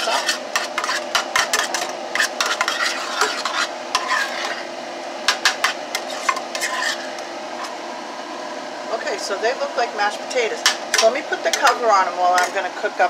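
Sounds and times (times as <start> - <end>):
spoon scraping mashed potatoes: 0.0 - 4.7, 5.3 - 7.8
range hood fan humming: 0.0 - 13.0.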